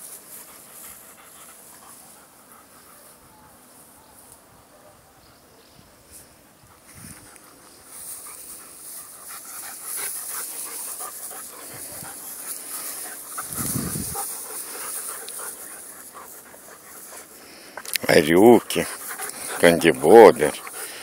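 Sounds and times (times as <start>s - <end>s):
dogs panting: 0.0s - 3.2s, 6.6s - 21.0s
grass rustling: 0.0s - 4.7s, 5.9s - 21.0s.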